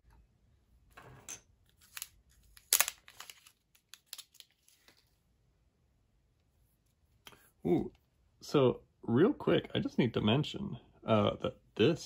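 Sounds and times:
plastic film crackling: 1.8s - 4.9s.

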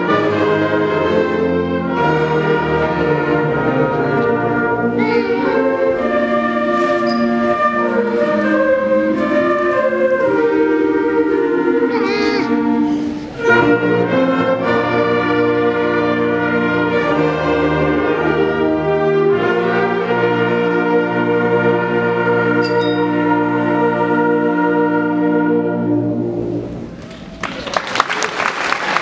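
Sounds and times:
applause: 27.0s - 29.0s.

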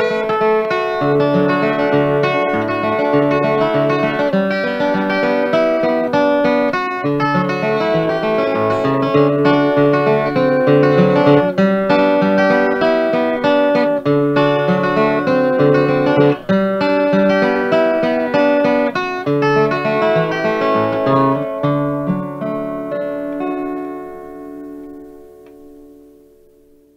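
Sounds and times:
acoustic guitar picking: 0.0s - 26.9s.

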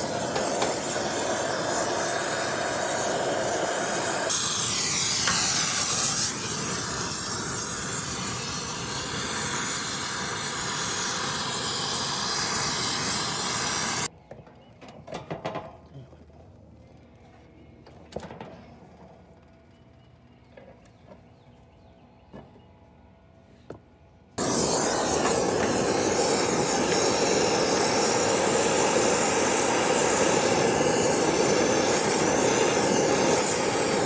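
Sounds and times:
brazing torch flame hissing: 0.0s - 14.1s, 24.4s - 34.0s.

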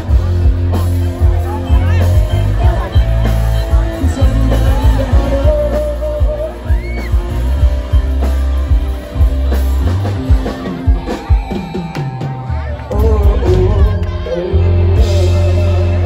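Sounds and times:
man singing amplified: 0.0s - 7.7s, 12.4s - 16.0s
live rock band playing: 0.0s - 16.0s.

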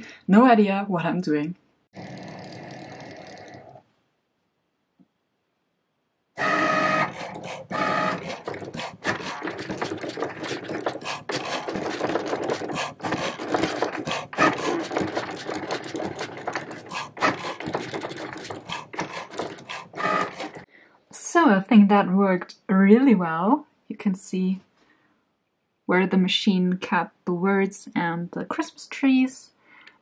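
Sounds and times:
cutting machine motors whirring: 6.4s - 20.7s.

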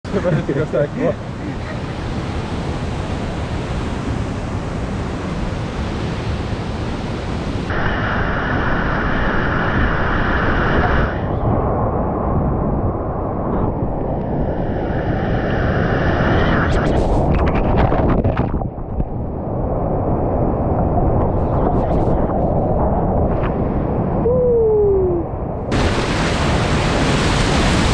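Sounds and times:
water churning around boat: 0.1s - 24.1s, 25.5s - 27.9s
whitewater rushing in rapids: 25.7s - 27.9s.

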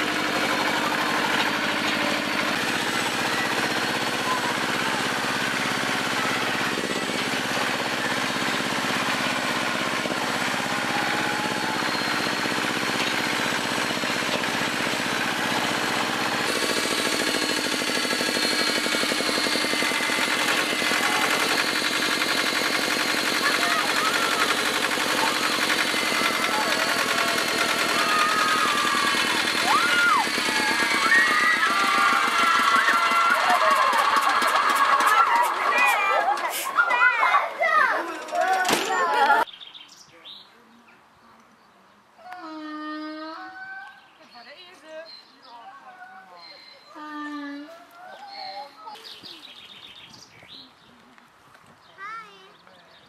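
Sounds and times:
tractor engine running: 0.0s - 39.5s.

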